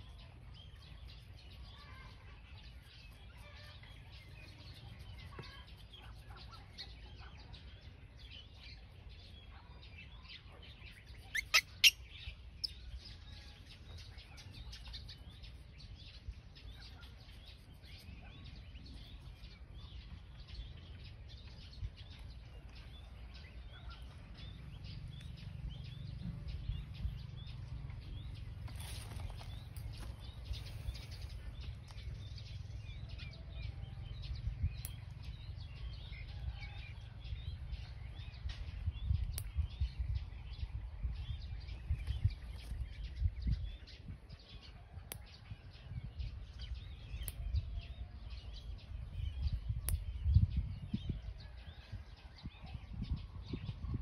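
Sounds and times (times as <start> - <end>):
small birds chirping: 0.0 - 54.0
low rumble: 19.0 - 44.4.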